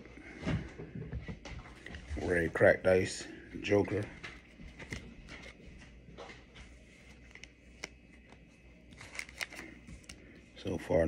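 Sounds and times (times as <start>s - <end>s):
faint low hum: 0.0s - 11.0s
trading cards clicking and rustling: 3.6s - 10.2s.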